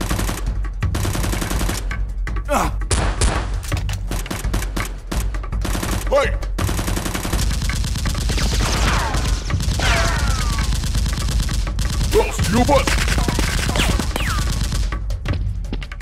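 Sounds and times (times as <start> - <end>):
rapid gunfire: 0.0 - 2.0, 2.9 - 15.2.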